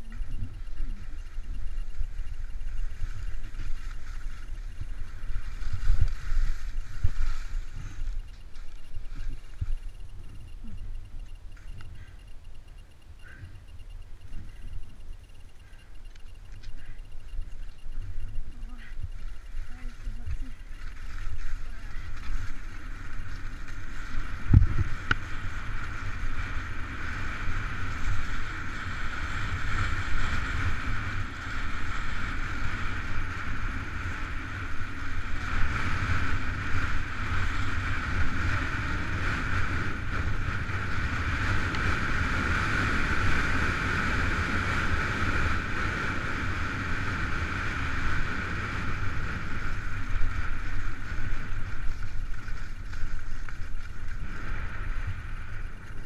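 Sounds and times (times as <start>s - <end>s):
skis hissing over snow: 3.0s - 8.1s, 46.8s - 56.0s
wind buffeting microphone: 13.1s - 56.0s.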